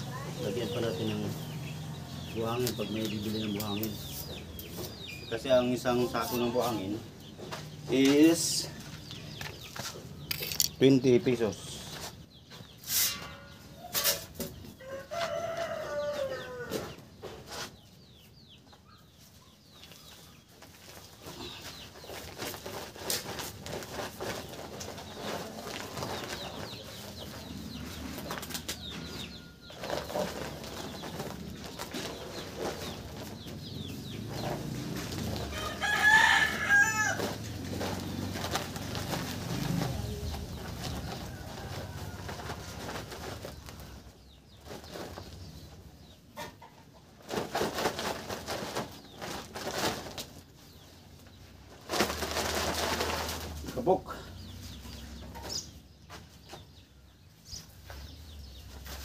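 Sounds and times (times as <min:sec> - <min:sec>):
rooster crowing: 0:14.8 - 0:16.9, 0:35.5 - 0:37.4
sack rustling: 0:21.6 - 0:27.4, 0:29.7 - 0:33.4, 0:34.4 - 0:43.8, 0:51.7 - 0:53.8.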